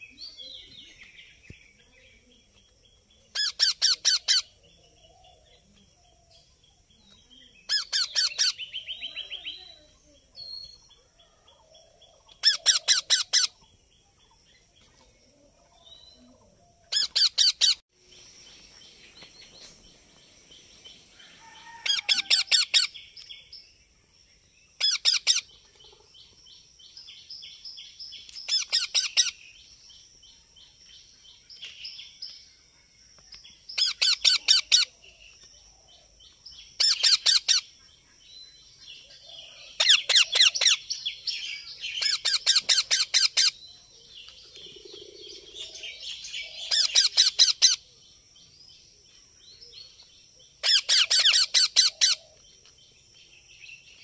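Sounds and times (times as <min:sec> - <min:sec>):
parakeets calling: 0:03.3 - 0:04.6, 0:07.7 - 0:09.5, 0:12.4 - 0:13.6, 0:16.9 - 0:17.8, 0:21.6 - 0:23.0, 0:24.8 - 0:25.5, 0:28.4 - 0:29.4, 0:33.8 - 0:34.9, 0:36.7 - 0:37.7, 0:39.8 - 0:41.0, 0:41.6 - 0:43.6, 0:45.0 - 0:47.8, 0:50.6 - 0:52.3.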